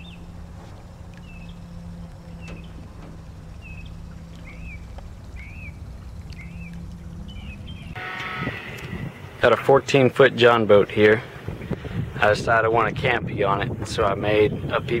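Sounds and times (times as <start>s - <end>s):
bird chirping: 0.0s - 9.4s
low steady hum: 0.0s - 13.2s.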